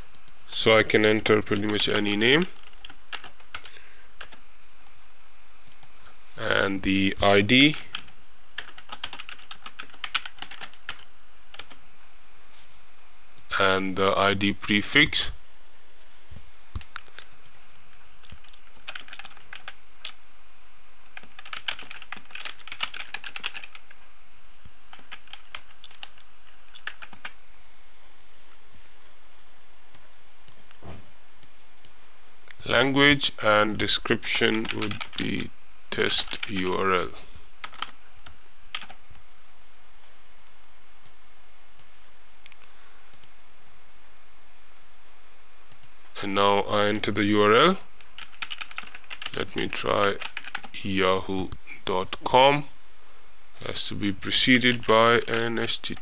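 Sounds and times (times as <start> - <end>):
steady background hiss: 0.0 - 56.0
typing on computer keyboard: 2.6 - 4.4, 7.9 - 11.8, 18.2 - 20.2, 21.2 - 23.9, 24.9 - 27.4, 34.6 - 35.2, 37.6 - 38.0, 38.7 - 39.0, 48.1 - 49.4, 50.2 - 50.7.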